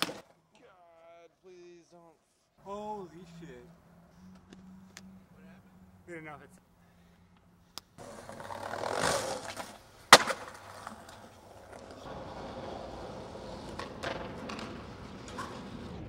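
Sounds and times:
skateboard clack: 0.0 - 0.3, 8.0 - 16.0
skateboard wheels rolling on concrete: 8.0 - 16.0
light clicks of skateboard: 13.5 - 16.0.

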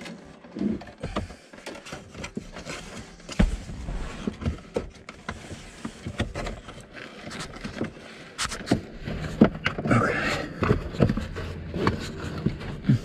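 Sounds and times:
wire scraping through carpet: 2.3 - 7.6.

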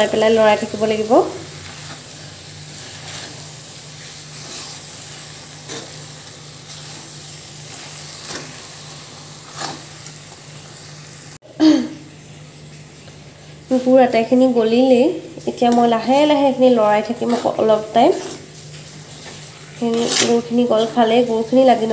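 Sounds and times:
low sizzle: 0.0 - 21.9
metal spoon scraping a pan: 2.7 - 7.1, 9.4 - 10.1, 17.2 - 18.5, 19.1 - 21.0.

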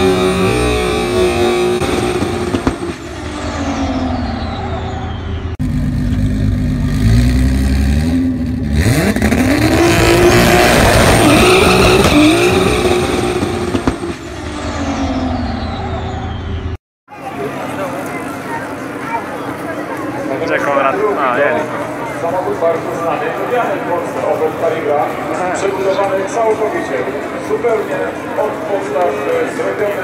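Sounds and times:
race car engine revving: 0.0 - 16.8
distant race car engine: 0.0 - 30.0.

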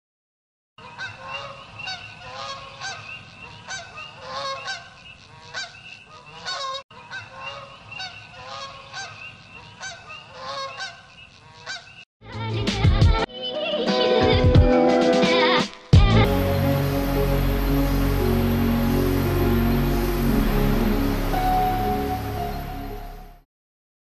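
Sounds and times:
geese honking: 0.8 - 12.0.

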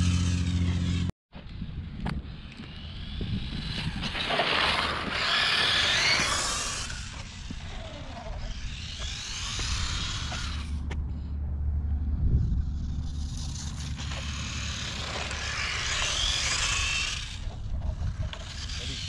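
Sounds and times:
toy truck electric motor whining: 0.0 - 10.9, 12.6 - 19.0.

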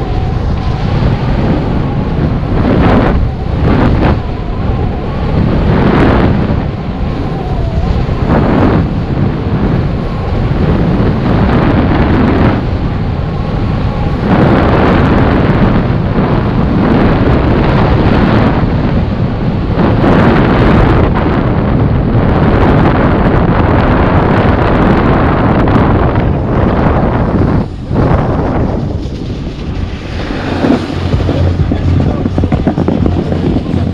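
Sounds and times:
wind buffeting microphone: 0.0 - 33.9
snowboard scraping over snow: 25.8 - 33.9.

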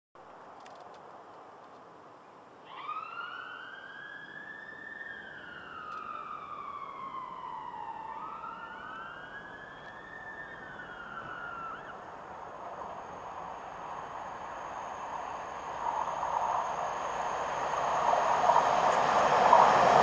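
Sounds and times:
police siren wailing: 2.7 - 12.4.

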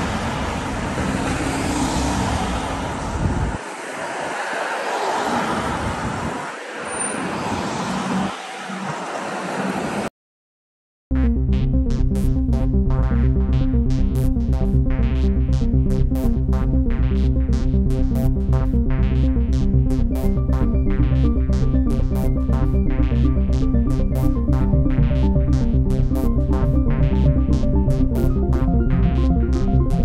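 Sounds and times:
cars passing on street: 0.0 - 10.1
synthesizer theme with steady beat: 11.1 - 30.0.

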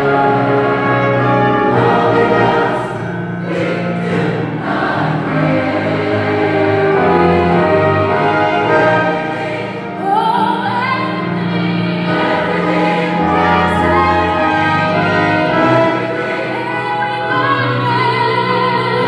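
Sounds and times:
mixed choir singing a hymn: 0.0 - 19.0
woman singing into a microphone: 10.0 - 11.4, 16.6 - 19.0.

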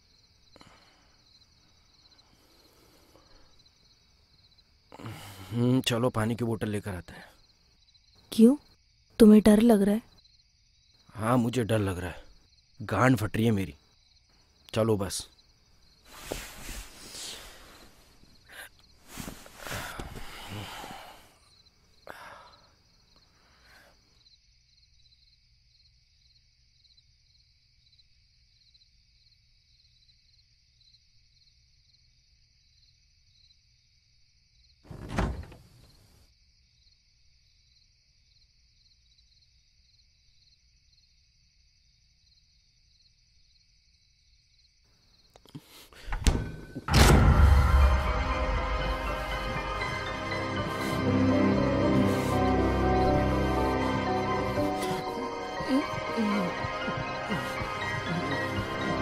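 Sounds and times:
crickets chirring: 0.0 - 35.5
rustling movement: 16.0 - 20.5
loud thud: 46.2 - 49.9.

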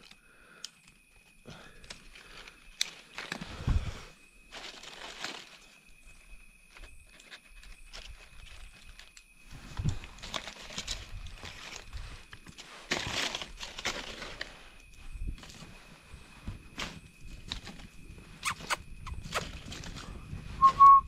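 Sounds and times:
dry leaves rustling and crackling: 4.5 - 5.8, 6.8 - 15.8.

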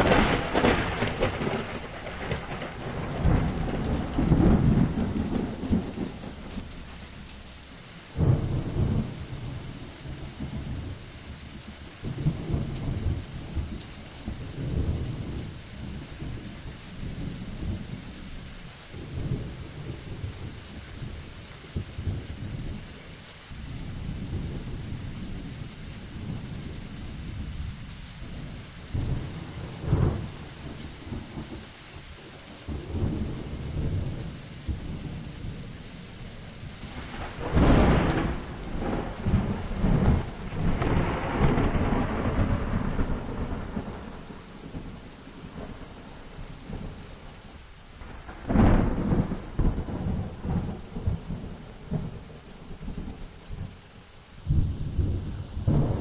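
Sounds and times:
rolling thunder: 0.0 - 11.4, 23.6 - 47.0, 47.9 - 53.8, 54.4 - 56.0
steady rain: 0.0 - 56.0.

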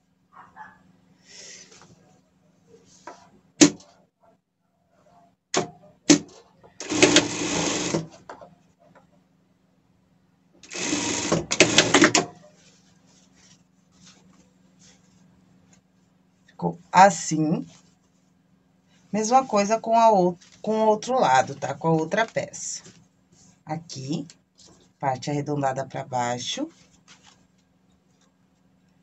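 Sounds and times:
faint motor hum: 5.2 - 29.0
sewing machine stitching: 6.1 - 8.2, 10.6 - 12.3.

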